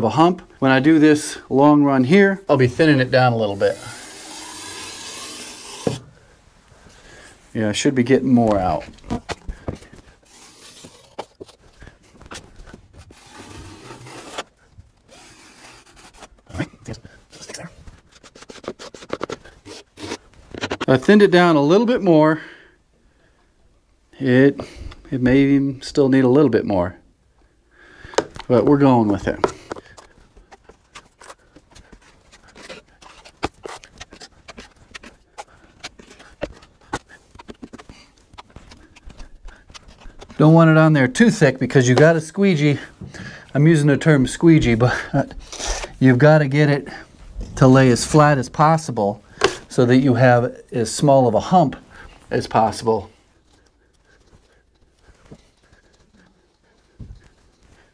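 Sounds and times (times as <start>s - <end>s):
taping knife scraping wall: 2.8s - 6.2s, 9.2s - 16.6s, 18.0s - 21.0s, 29.2s - 40.4s.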